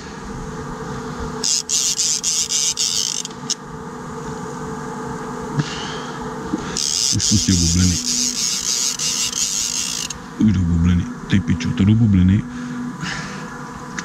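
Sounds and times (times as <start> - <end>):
steady low hum: 0.0 - 14.0
fishing reel whirring: 1.4 - 3.6, 6.7 - 10.2.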